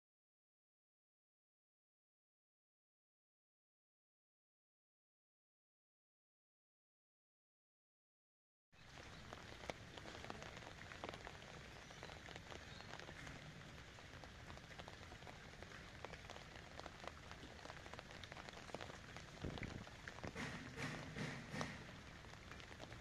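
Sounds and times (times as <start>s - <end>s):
light rain falling: 8.8s - 23.0s.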